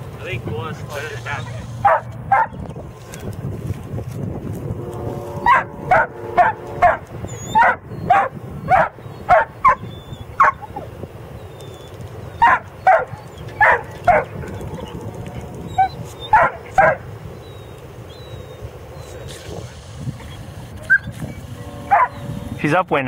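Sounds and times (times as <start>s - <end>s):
dog barking: 1.8s - 2.6s, 5.4s - 10.8s, 12.4s - 14.4s, 15.8s - 17.0s, 21.9s - 22.2s.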